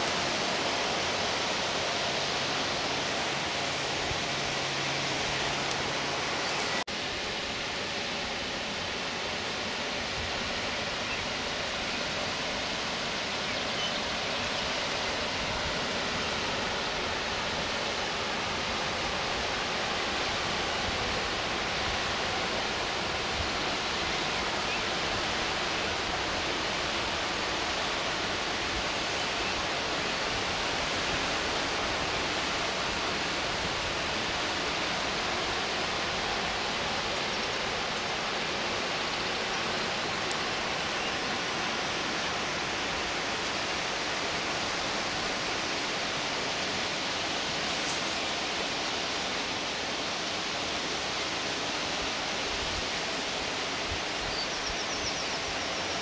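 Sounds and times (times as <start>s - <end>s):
waterfall and river rapids rushing: 0.0s - 56.0s.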